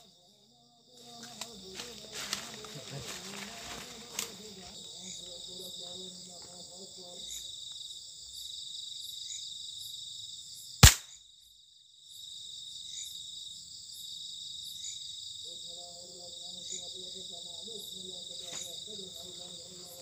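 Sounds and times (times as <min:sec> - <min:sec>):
crickets and insects chirring: 0:00.0 - 0:20.0
sharp loud crack: 0:10.8 - 0:11.1.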